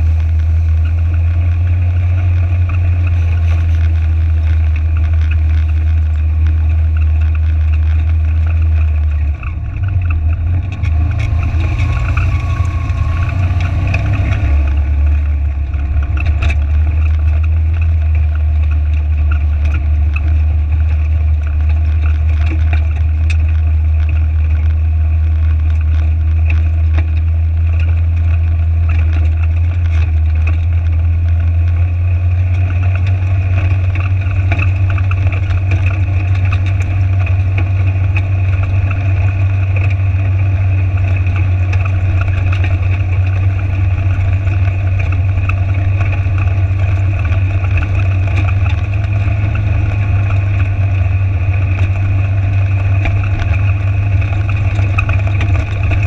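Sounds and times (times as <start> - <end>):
vehicle engine drone: 0.0 - 56.0.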